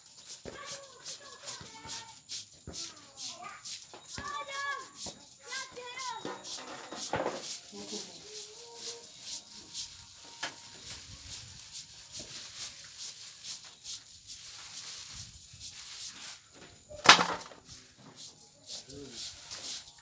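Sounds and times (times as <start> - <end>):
hands scrubbing in metal basin: 0.0 - 20.0.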